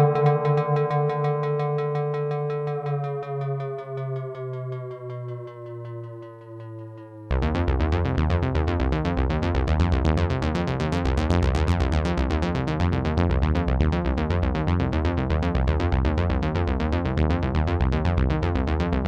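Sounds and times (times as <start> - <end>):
pulsing synthesizer electronica: 0.0 - 14.6.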